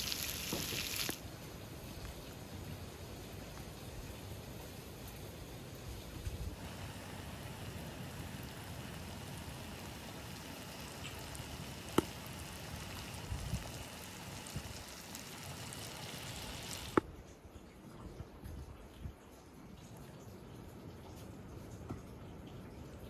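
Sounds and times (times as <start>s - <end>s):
meat and vegetables sizzling: 0.0s - 1.2s, 6.5s - 17.0s
sharp pops from griddle: 0.0s - 1.2s, 9.7s - 17.0s.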